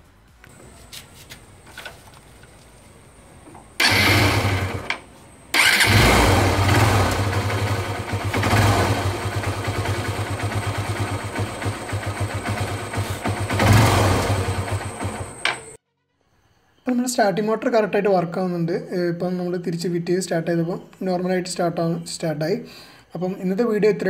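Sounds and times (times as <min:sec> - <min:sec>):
motorcycle engine idling: 0:03.0 - 0:15.8
electric starter motor cranking: 0:03.8 - 0:15.8.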